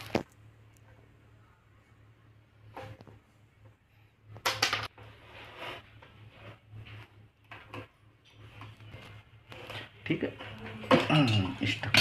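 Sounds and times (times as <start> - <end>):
scraping wire insulation: 4.8 - 12.0.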